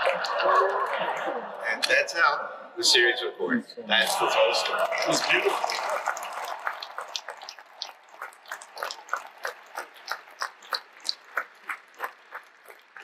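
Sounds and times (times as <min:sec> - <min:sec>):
applause: 0:04.1 - 0:13.0.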